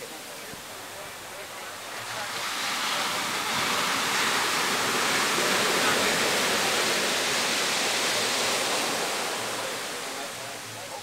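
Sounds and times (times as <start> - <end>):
sea surf breaking on sand: 0.0 - 11.0.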